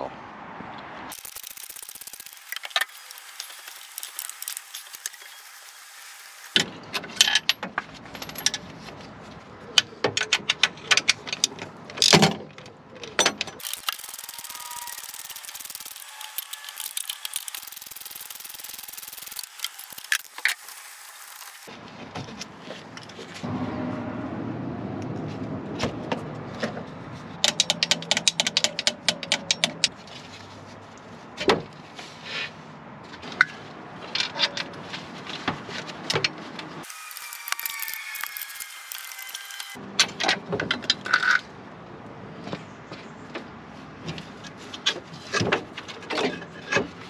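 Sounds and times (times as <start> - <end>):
hand tools and metal parts clinking: 1.1 - 21.7, 33.2 - 41.5.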